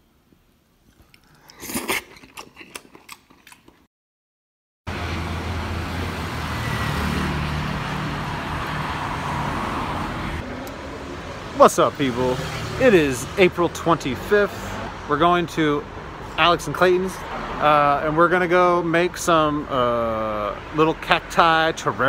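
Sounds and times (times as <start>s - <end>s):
street traffic: 4.9s - 22.0s.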